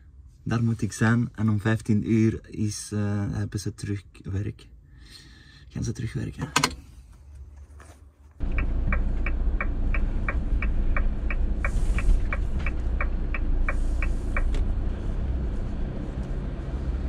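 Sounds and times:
engine and road rumble: 0.0s - 17.0s
turn signal ticking: 8.4s - 14.9s.

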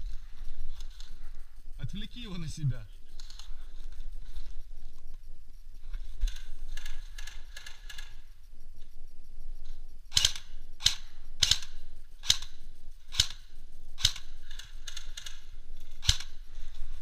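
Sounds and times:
airsoft rifle shots: 10.1s - 16.4s.

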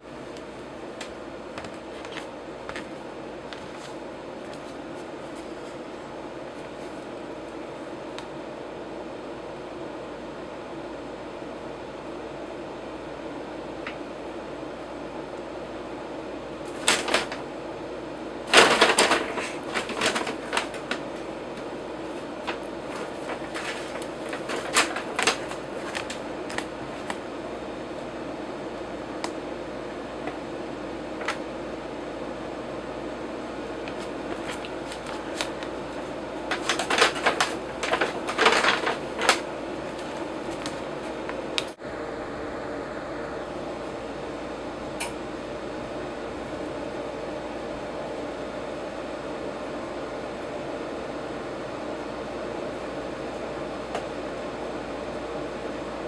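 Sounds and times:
steady background hum: 0.0s - 56.0s
paper bag rustling: 1.5s - 5.9s, 16.7s - 17.5s, 18.5s - 27.2s, 33.8s - 41.8s.

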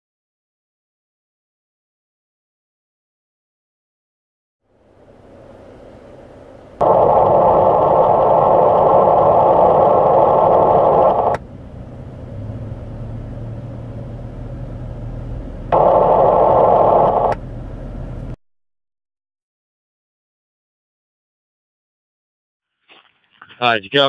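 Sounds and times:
low hum: 4.8s - 18.4s
raspy digital radio buzz: 6.8s - 11.4s, 15.7s - 17.4s.

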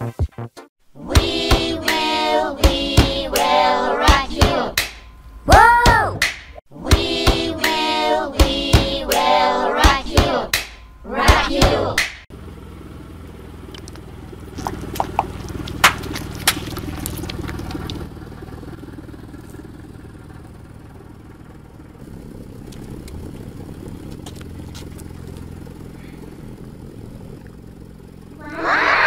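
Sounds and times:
car engine running: 6.9s - 29.0s
balls popping under tyre: 13.6s - 19.8s, 22.5s - 26.0s.

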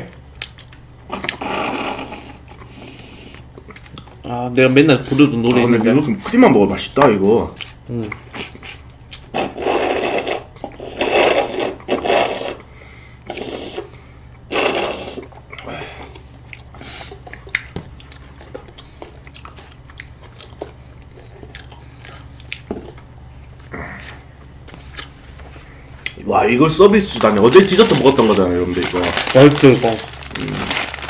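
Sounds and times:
people chewing food: 0.3s - 26.2s, 26.9s - 31.0s
mouth clicks and smacks: 16.5s - 20.6s.

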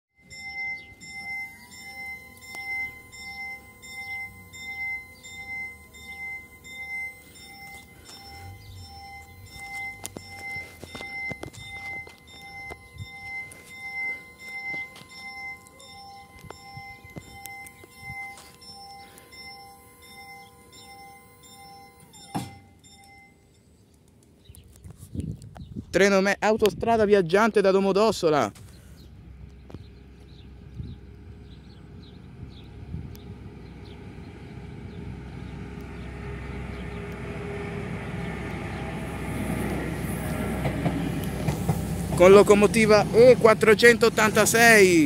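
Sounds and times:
train rumbling on track: 0.2s - 21.0s, 29.0s - 45.0s
level crossing bell dinging: 0.2s - 23.7s, 42.1s - 45.0s
steady whine: 0.2s - 24.3s
barrier thunk: 22.3s - 22.7s.

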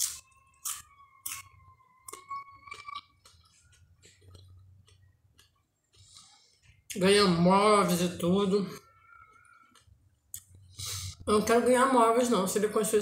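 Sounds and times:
person chewing food: 0.0s - 7.0s, 8.7s - 11.1s.

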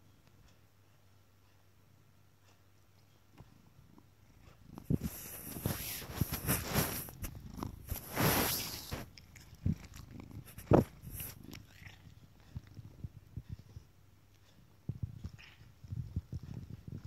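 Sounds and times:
cat purring: 1.8s - 17.0s
rustling: 4.3s - 17.0s.

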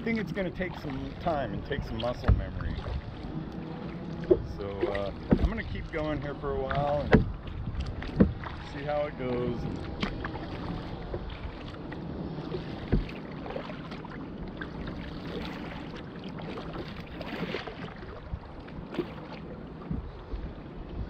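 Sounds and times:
paddle splashing in water: 0.0s - 21.0s
wind on microphone: 0.0s - 21.0s.

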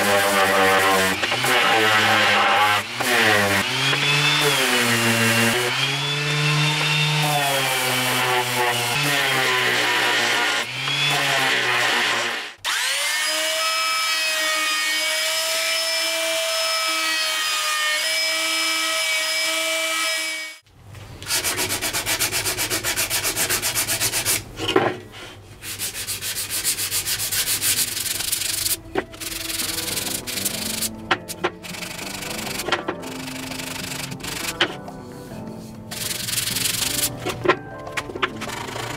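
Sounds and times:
hand sanding wood: 0.0s - 12.4s, 21.3s - 24.5s, 25.6s - 34.8s, 35.9s - 37.1s
orbital sander whining: 0.0s - 13.6s.

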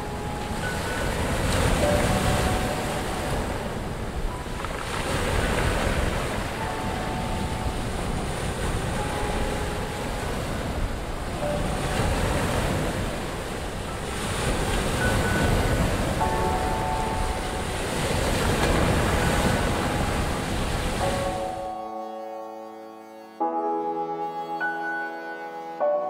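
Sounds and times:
surf washing onto beach: 0.0s - 21.6s.

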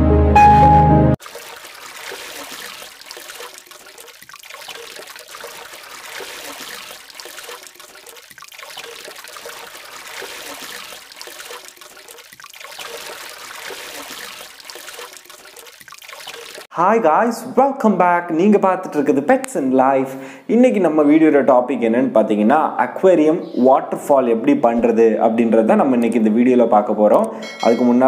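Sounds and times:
water trickling and splashing: 1.2s - 16.7s.

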